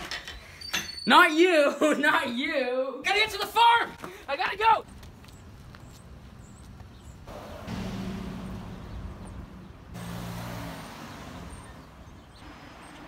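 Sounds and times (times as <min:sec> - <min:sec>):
cars driving past: 0:07.2 - 0:13.0.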